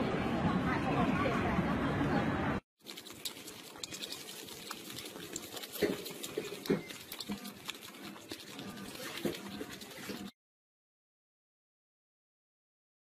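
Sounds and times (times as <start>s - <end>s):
puppy lapping milk: 2.8s - 10.4s.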